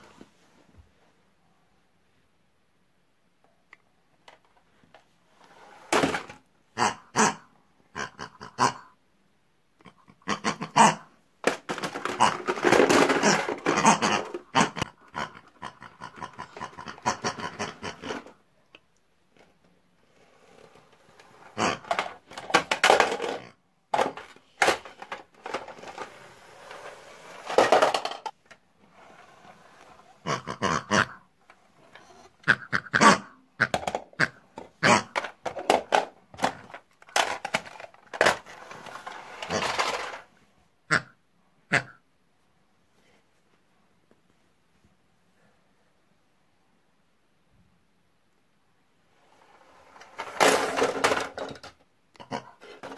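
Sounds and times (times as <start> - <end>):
toy pigs grunting and squealing: 6.0 - 9.0, 9.8 - 18.4, 21.2 - 26.0, 30.1 - 31.3, 31.9 - 38.4, 39.3 - 40.2, 40.9 - 42.0, 50.4 - 52.9
plastic toy pieces clattering: 11.4 - 14.4, 21.8 - 26.2, 27.4 - 28.3, 35.1 - 40.3, 49.8 - 51.8.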